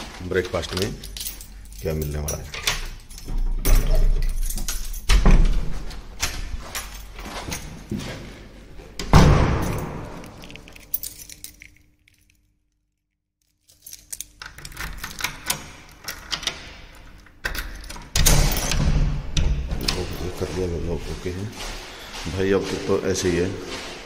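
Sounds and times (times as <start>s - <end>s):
door chain clicking and rattling: 0.4s - 7.9s, 9.0s - 12.5s, 13.4s - 20.5s.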